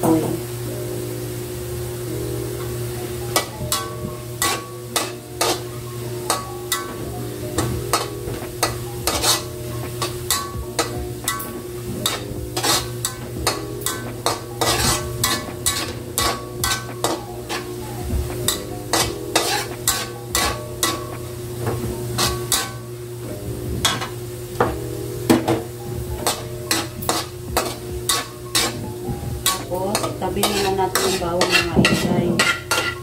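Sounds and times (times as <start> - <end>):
garlic sizzling in oil: 0.0 - 33.0
metal spatula scraping wok: 3.4 - 5.7, 6.3 - 21.4, 22.1 - 22.9, 26.2 - 33.0.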